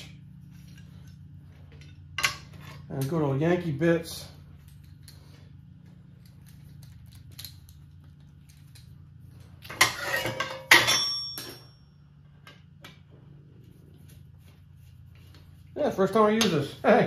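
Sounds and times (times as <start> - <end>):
low steady hum: 0.0 - 17.0
steel tools clattering: 9.7 - 11.8
metal ringing: 9.8 - 12.2.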